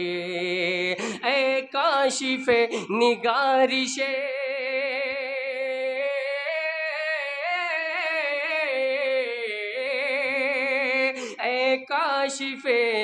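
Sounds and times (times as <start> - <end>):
man singing devotional song: 0.0 - 13.0.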